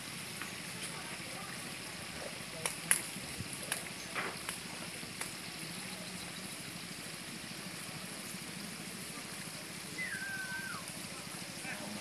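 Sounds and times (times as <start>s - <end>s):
falling whistle-like tone: 10.0s - 10.9s.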